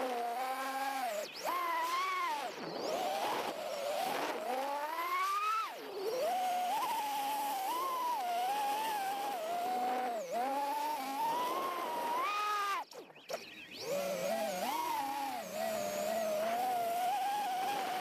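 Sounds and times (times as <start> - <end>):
drone motors whining: 0.0 - 18.0.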